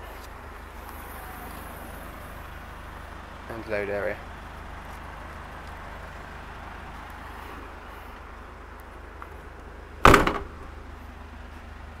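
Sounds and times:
van tailgate shutting thud: 10.0 - 10.8.

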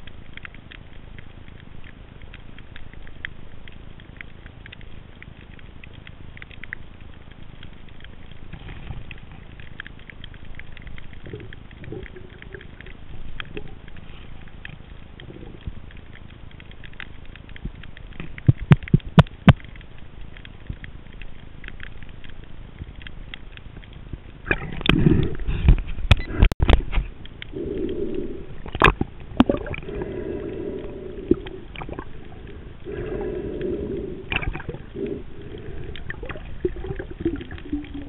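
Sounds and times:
underwater crackle of tiny clicks: 0.0 - 38.0
rush of water noise: 24.4 - 38.0.

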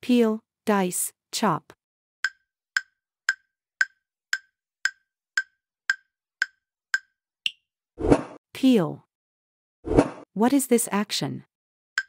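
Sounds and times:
timer ticking: 2.2 - 7.6.

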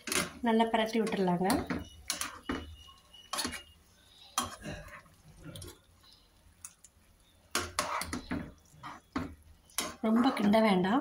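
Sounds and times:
spoon clinking against pan: 1.0 - 5.0.

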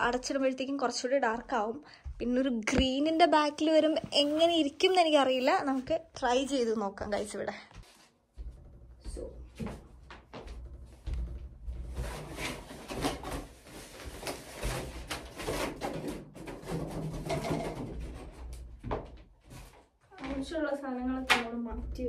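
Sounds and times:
objects rustling and knocking: 7.8 - 20.6.

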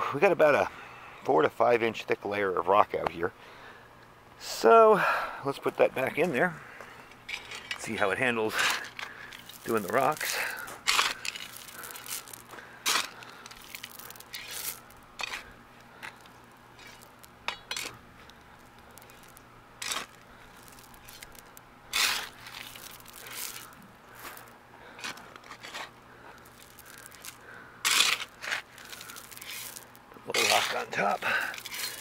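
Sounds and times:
shovel scraping through gravel: 7.3 - 18.0, 18.6 - 32.0.

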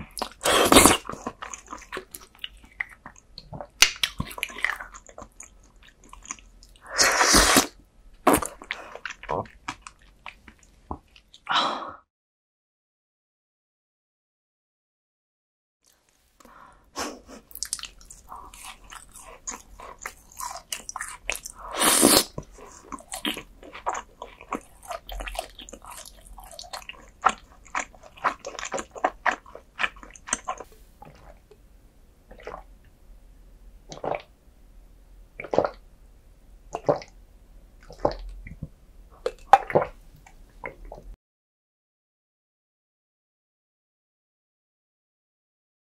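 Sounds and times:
wet chewing and smacking: 0.0 - 6.8, 17.4 - 31.4, 37.8 - 41.1.

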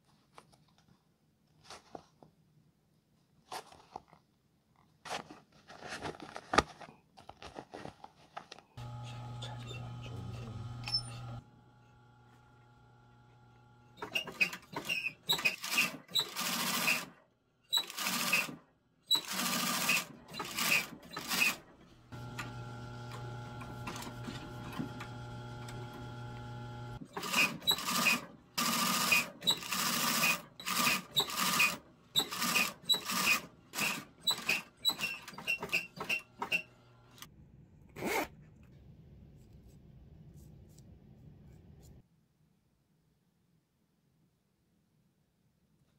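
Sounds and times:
motor humming: 8.8 - 14.0, 22.1 - 27.0
sewing machine stitching: 8.8 - 37.3.

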